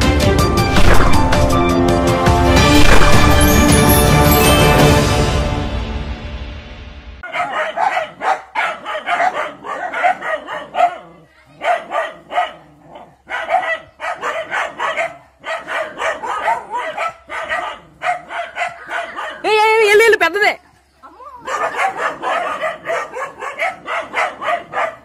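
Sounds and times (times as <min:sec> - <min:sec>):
music jingle: 0:00.3 - 0:07.2
dogs barking aggressively: 0:07.2 - 0:19.5, 0:21.4 - 0:25.0.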